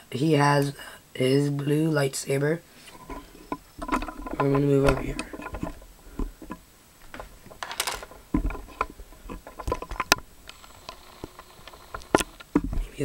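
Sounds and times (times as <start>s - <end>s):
objects being handled: 2.8s - 13.0s.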